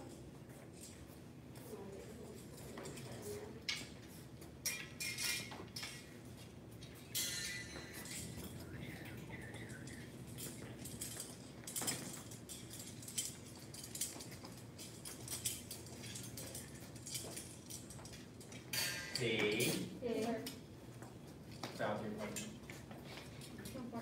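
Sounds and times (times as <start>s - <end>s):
metal knives clinking: 4.6s - 6.1s, 7.0s - 19.9s.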